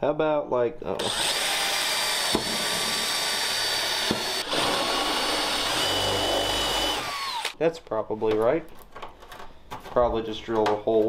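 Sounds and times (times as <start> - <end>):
cordless drill whining: 1.0 - 7.6.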